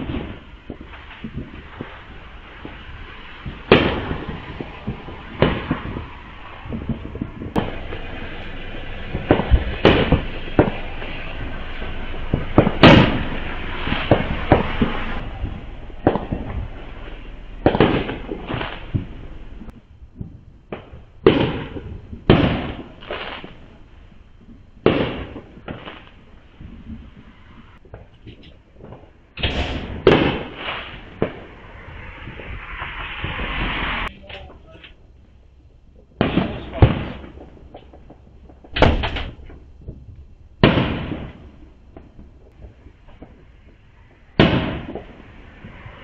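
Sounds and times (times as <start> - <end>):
fireworks banging: 0.0 - 46.0
continuous din: 3.4 - 22.8.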